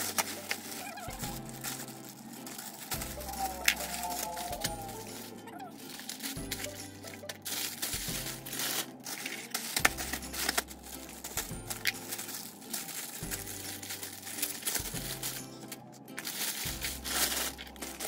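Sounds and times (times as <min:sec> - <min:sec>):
plastic bag crinkling: 0:00.0 - 0:18.0
background music with bass line: 0:03.0 - 0:05.5, 0:06.4 - 0:08.8, 0:09.8 - 0:12.4, 0:13.2 - 0:18.0.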